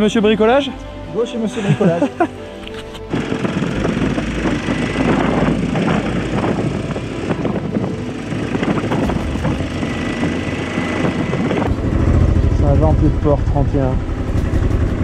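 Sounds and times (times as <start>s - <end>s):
motorcycle engine with leaking exhaust: 3.0s - 15.0s.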